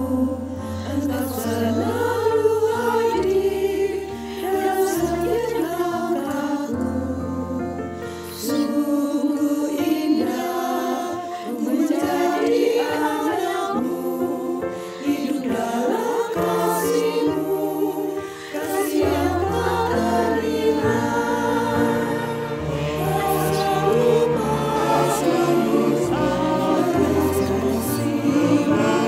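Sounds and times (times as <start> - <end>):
choir singing a hymn: 0.0 - 29.0
instrumental accompaniment: 18.6 - 29.0.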